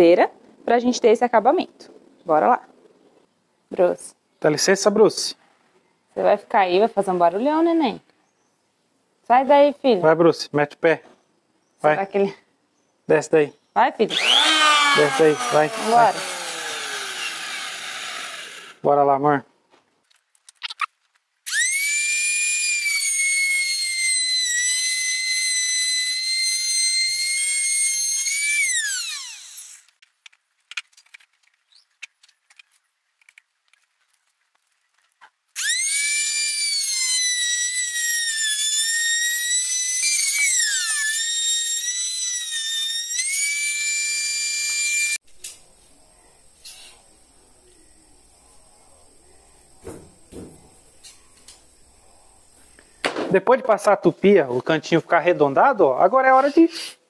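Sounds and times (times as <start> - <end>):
trim router whining: 14.1 - 18.8, 21.5 - 30.0, 35.6 - 45.2.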